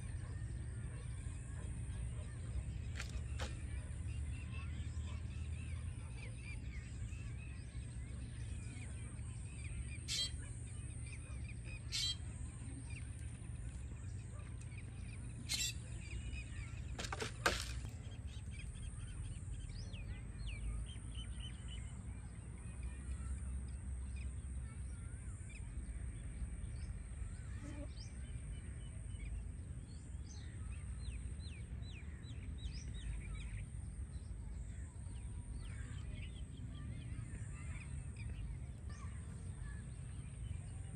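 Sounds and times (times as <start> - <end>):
small birds chirping: 0.0 - 21.9.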